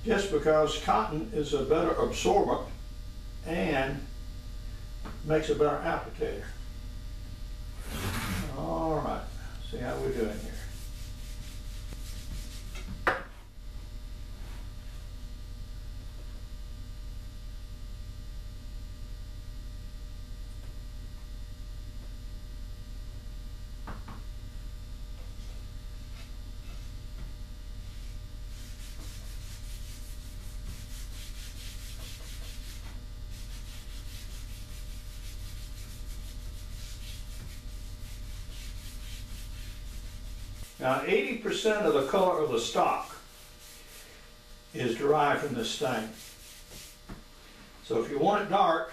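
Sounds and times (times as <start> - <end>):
steady low hum: 0.0 - 48.9
cloth rubbing on wood: 7.8 - 12.9, 27.9 - 47.8.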